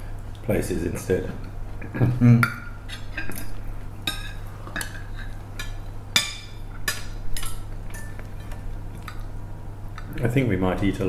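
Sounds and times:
steady low hum: 0.0 - 11.0
cutlery clinking on plates: 4.1 - 9.2.

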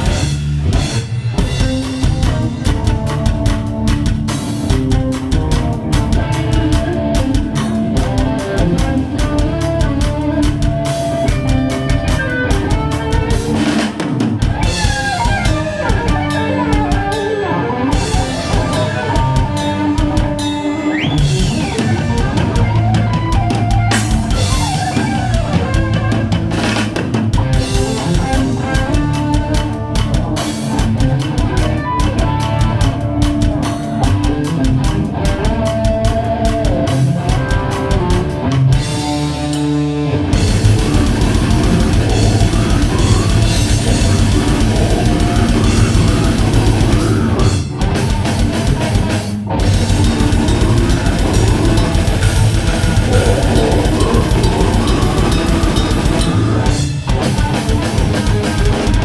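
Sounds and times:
distorted electric guitars: 0.0 - 59.0
fast drum kit: 0.0 - 59.0
high bending guitar note: 40.4 - 47.5, 49.8 - 57.1.

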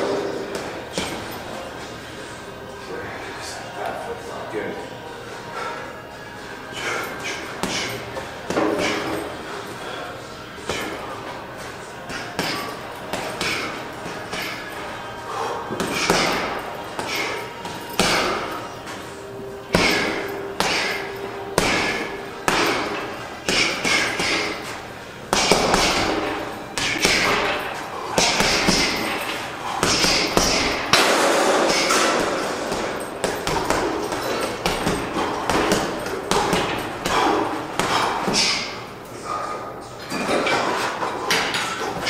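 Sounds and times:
sharp knocks and clanks: 25.3 - 38.7.

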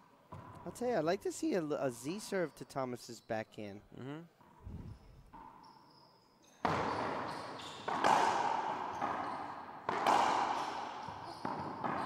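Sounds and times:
racquetball hits echoing: 6.5 - 12.0.

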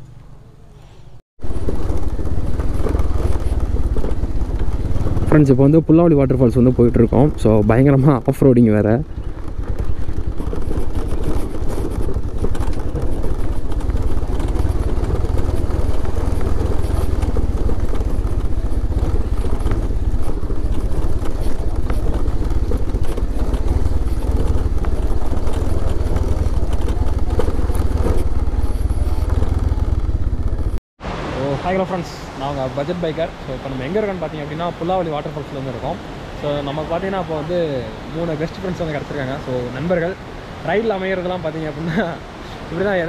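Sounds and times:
motorcycle engine running: 1.4 - 30.8.

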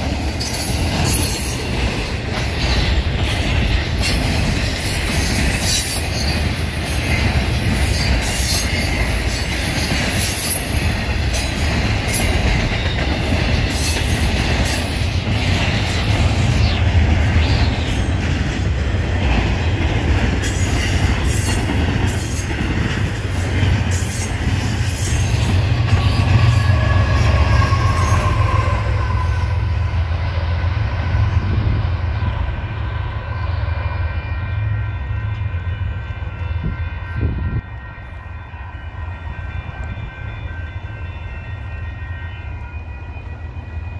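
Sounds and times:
train wheel squeal: 0.0 - 18.4, 20.3 - 43.9
freight train rumbling past: 0.0 - 43.9.

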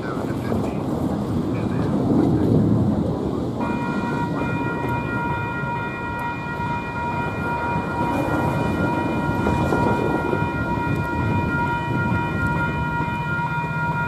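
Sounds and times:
steady low rumble: 0.0 - 14.0
distant locomotive air horn: 3.6 - 14.0.

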